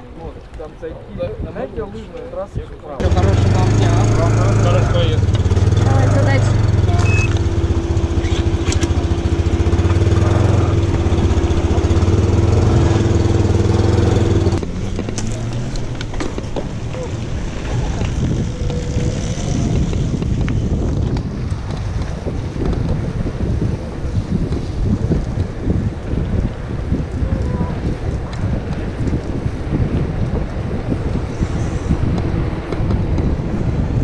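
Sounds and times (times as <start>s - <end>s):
wind on microphone: 0.0s - 34.0s
ferry engine drone: 3.0s - 22.7s
bicycle tyres on dirt road: 3.0s - 34.0s.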